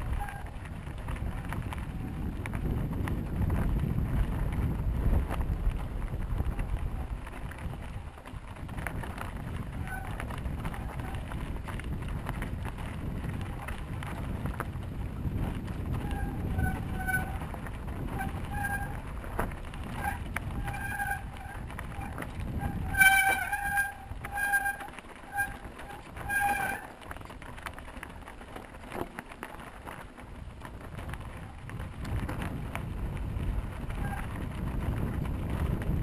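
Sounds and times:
wind on microphone: 0.0s - 29.1s, 29.8s - 36.0s
bike brakes squealing: 16.0s - 17.5s, 18.1s - 19.0s, 19.8s - 26.9s.

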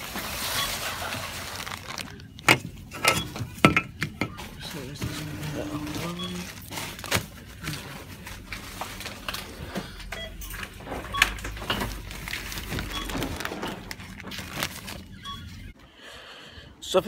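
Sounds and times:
plastic bag rustling: 0.0s - 9.8s, 10.6s - 15.6s
checkout electronic beeps: 0.4s - 1.4s, 2.0s - 6.7s, 9.8s - 15.8s.

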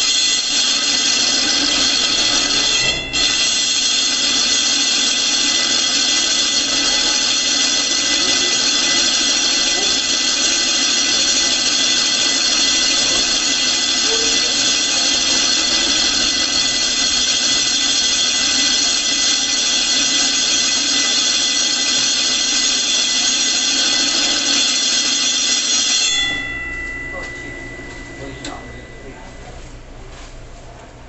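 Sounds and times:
motor running: 0.8s - 24.9s.

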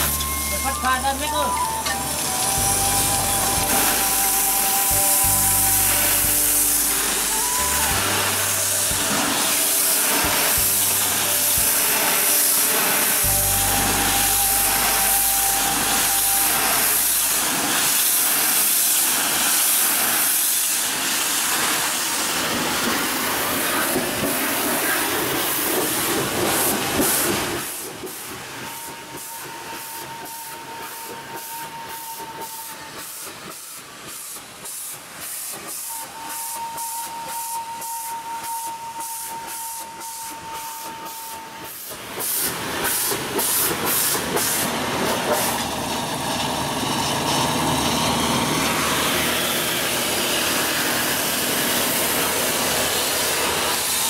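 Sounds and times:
pressure washer jet hissing: 0.0s - 54.0s
washer motor running: 1.7s - 27.8s, 43.0s - 54.0s.

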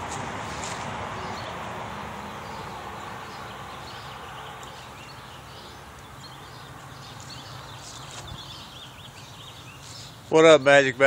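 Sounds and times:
small birds chirping: 0.5s - 11.0s.

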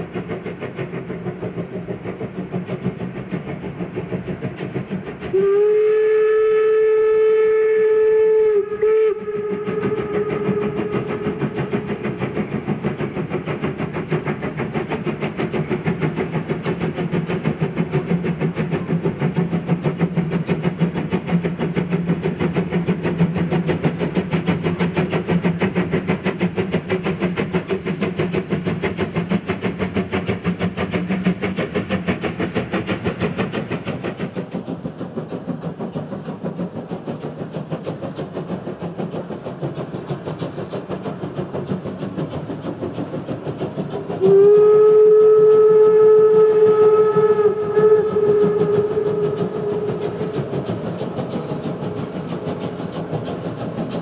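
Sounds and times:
steam locomotive exhaust beats: 0.0s - 54.0s
steam whistle blast: 5.3s - 11.6s, 44.2s - 50.4s.

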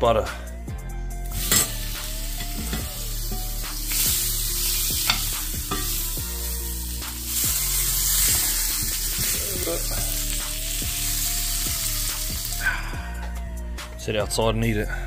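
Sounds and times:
fish sizzling in a frying pan: 1.3s - 12.8s.

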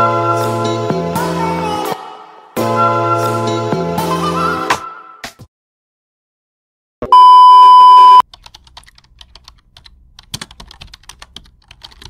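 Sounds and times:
censor bleep: 7.0s - 8.2s
keyboard typing clicks: 8.3s - 12.0s.

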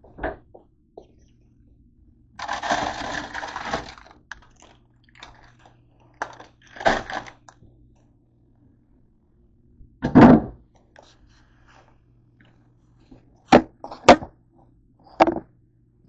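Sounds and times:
low steady hum: 0.0s - 16.0s
plastic bag rustling: 2.4s - 7.5s.

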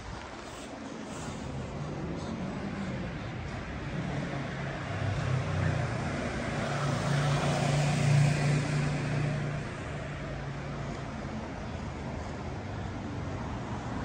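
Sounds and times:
street noise: 0.0s - 14.0s
vehicle engine passing: 1.1s - 10.6s.

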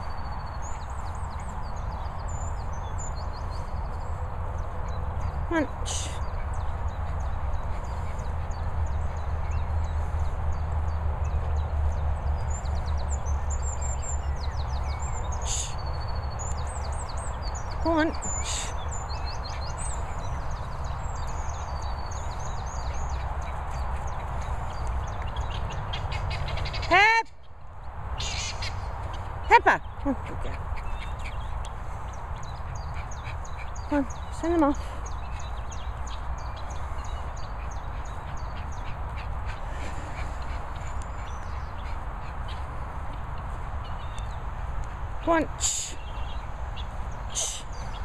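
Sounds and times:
guinea fowl calling: 25.4s - 27.1s, 28.2s - 29.3s.

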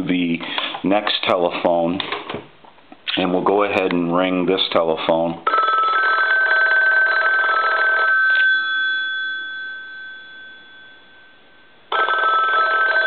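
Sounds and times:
telephone bells ringing: 5.5s - 13.0s.

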